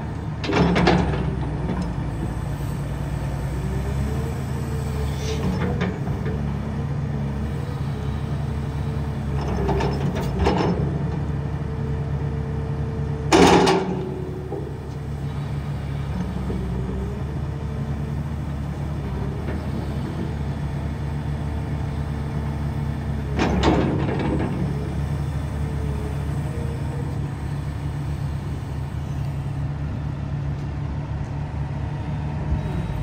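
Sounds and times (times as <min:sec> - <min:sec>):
excavator diesel engine droning: 0:00.0 - 0:33.0
short clunks: 0:13.2 - 0:16.9.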